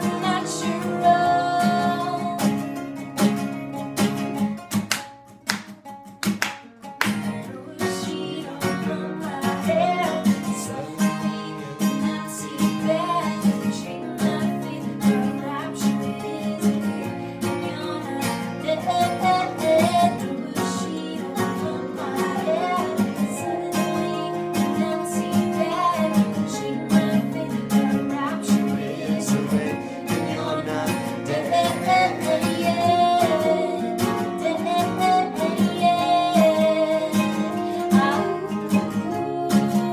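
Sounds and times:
woman singing: 0:00.0 - 0:02.9, 0:06.8 - 0:39.9
acoustic guitars strummed: 0:00.0 - 0:39.9
hand claps: 0:04.6 - 0:07.5.

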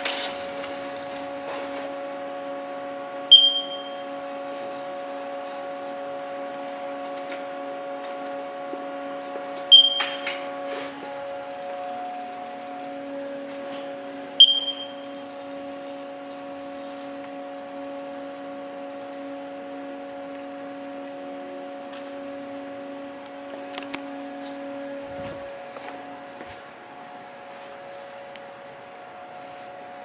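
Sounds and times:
electrical hum of machine: 0:00.0 - 0:30.0
sharp metallic ping: 0:03.3 - 0:04.0, 0:09.7 - 0:10.3, 0:14.4 - 0:15.0.

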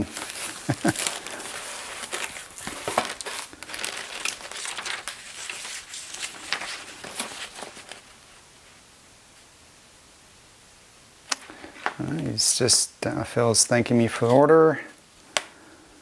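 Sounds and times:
packing paper crinkling: 0:00.0 - 0:08.8.

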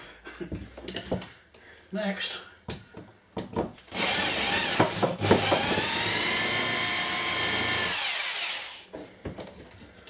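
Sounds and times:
power drill running: 0:03.9 - 0:08.9.

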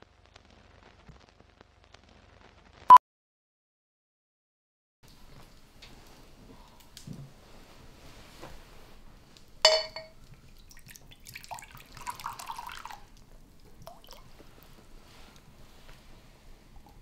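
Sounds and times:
glass clinking: 0:09.6 - 0:10.2
liquor pouring into glass: 0:09.7 - 0:13.2, 0:13.8 - 0:14.3.

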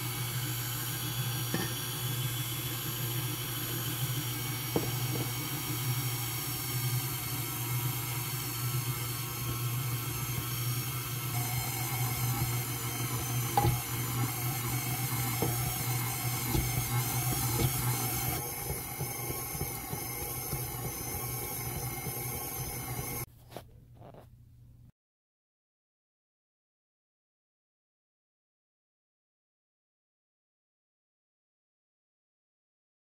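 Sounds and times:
stand mixer motor hum: 0:00.0 - 0:23.3
beater knocking: 0:11.4 - 0:23.2.

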